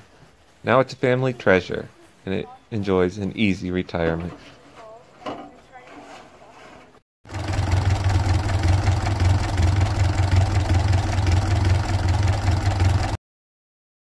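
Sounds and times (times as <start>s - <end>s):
tractor engine idling: 7.3s - 13.2s.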